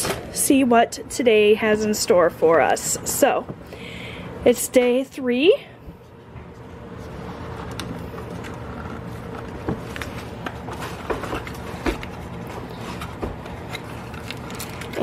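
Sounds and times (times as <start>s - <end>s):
steady low hum: 0.1s - 15.0s.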